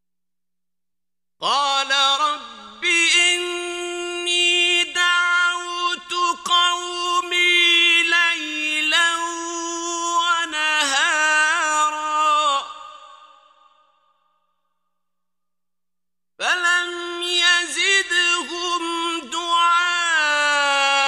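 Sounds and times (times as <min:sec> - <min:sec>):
man reciting melodically: 0:01.4 - 0:13.7, 0:16.4 - 0:21.0.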